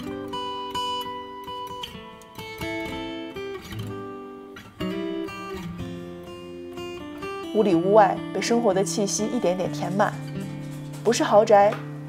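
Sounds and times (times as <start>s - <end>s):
acoustic guitar plucked chords: 0.0s - 12.0s.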